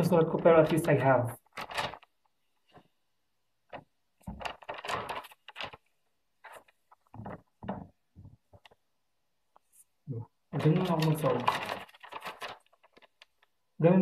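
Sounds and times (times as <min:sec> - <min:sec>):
paper rustling and shuffling: 0:00.2 - 0:03.0, 0:03.6 - 0:08.9, 0:10.5 - 0:13.6.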